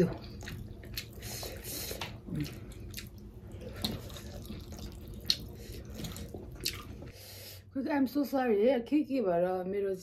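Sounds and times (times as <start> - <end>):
soft chewing and lip smacks: 0.2 - 7.1.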